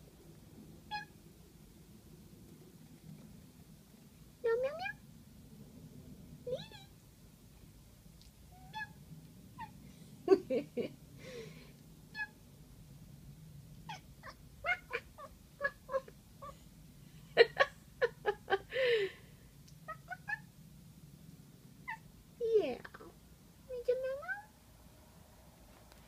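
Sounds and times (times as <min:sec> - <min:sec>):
cat meowing: 0:00.9 - 0:01.2, 0:04.5 - 0:05.0, 0:06.5 - 0:07.0, 0:08.5 - 0:09.0, 0:12.1 - 0:12.4, 0:13.9 - 0:16.1, 0:19.8 - 0:20.5, 0:21.8 - 0:22.1.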